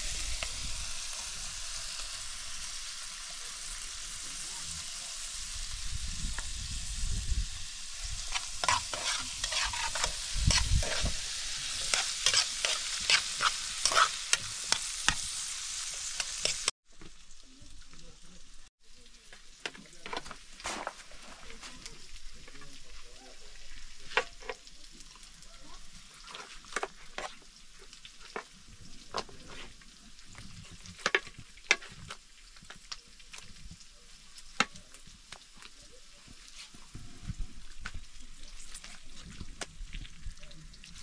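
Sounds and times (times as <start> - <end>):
food sizzling: 0.0 - 41.0
utensil scraping pan: 8.0 - 16.7.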